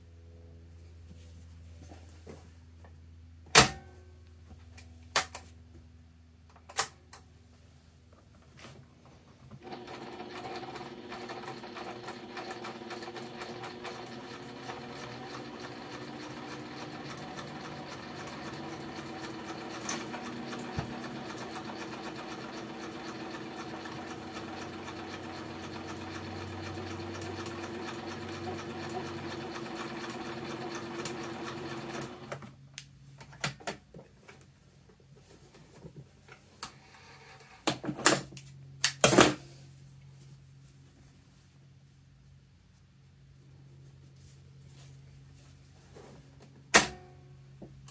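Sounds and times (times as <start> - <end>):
sewing machine rattling: 9.6 - 32.4.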